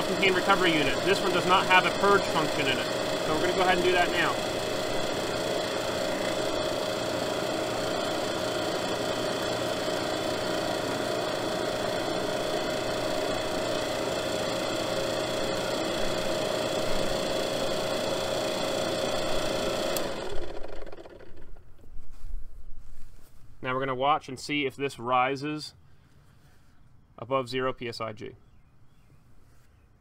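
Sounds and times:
recovery machine humming: 0:00.0 - 0:21.8.

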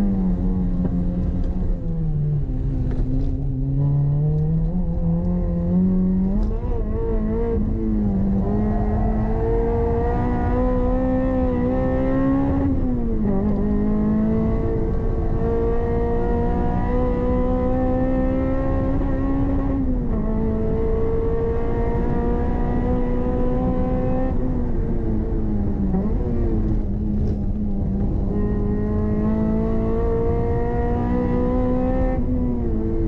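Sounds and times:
car engine revving under acceleration: 0:00.0 - 0:33.0.

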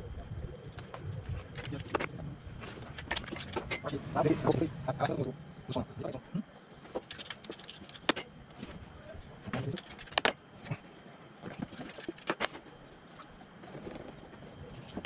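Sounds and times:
tools clicking and clanking on metal: 0:01.6 - 0:03.9, 0:06.9 - 0:08.3, 0:09.6 - 0:10.4.

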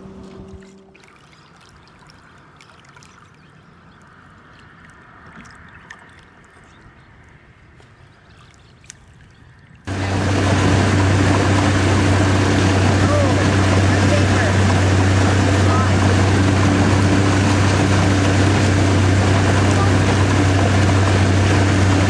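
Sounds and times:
motorboat engine running: 0:00.0 - 0:02.4, 0:09.8 - 0:22.0
faint water noise: 0:00.0 - 0:22.0
loud rushing noise: 0:09.9 - 0:22.0.

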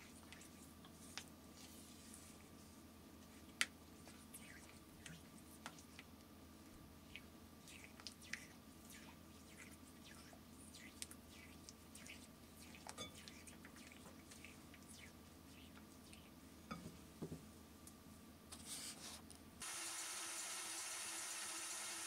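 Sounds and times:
running water hiss: 0:19.6 - 0:22.0.

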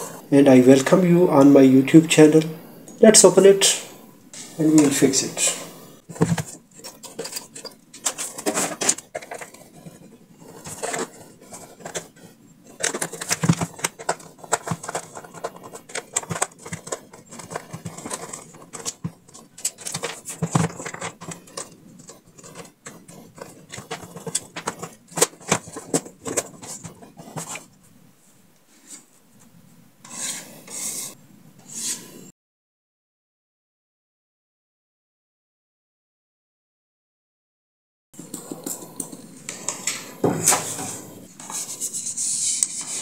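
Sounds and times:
plastic housing clicks and scrapes: 0:06.1 - 0:27.7.

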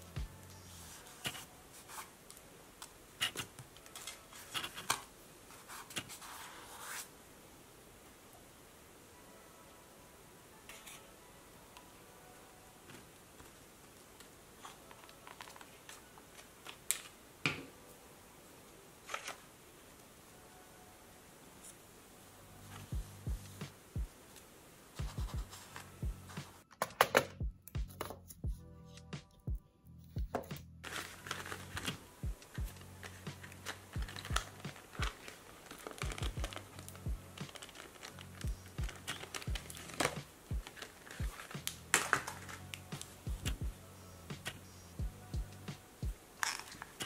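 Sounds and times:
background music with steady beat: 0:00.0 - 0:02.5, 0:22.3 - 0:24.3, 0:24.9 - 0:47.0
plastic packaging crinkling: 0:14.2 - 0:17.2, 0:19.0 - 0:19.5, 0:30.8 - 0:43.2, 0:46.4 - 0:47.0.

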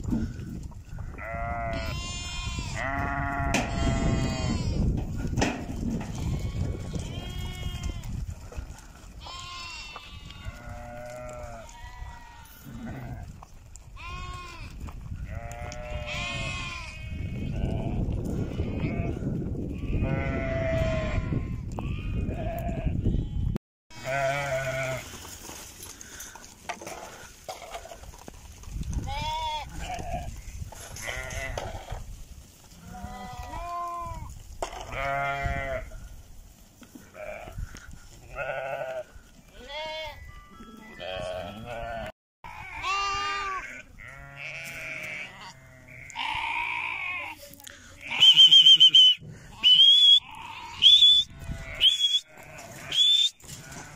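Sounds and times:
sheep bleating: 0:01.0 - 0:04.9, 0:06.2 - 0:08.1, 0:09.2 - 0:13.3, 0:14.0 - 0:23.4, 0:24.0 - 0:25.1, 0:31.0 - 0:31.9, 0:32.8 - 0:34.2, 0:34.9 - 0:35.9, 0:38.3 - 0:47.4, 0:50.2 - 0:53.9.

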